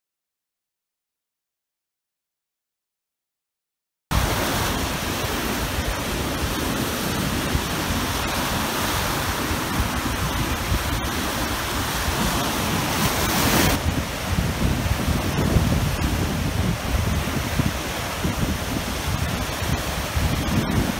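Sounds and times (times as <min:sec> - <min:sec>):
waves breaking on beach: 0:04.1 - 0:20.9
wind rumble on microphone: 0:04.1 - 0:20.9.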